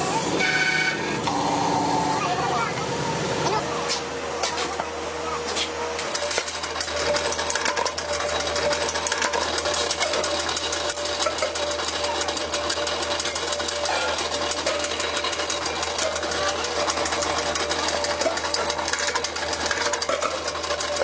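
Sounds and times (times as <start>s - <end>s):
machinery clattering: 5.5s - 21.0s.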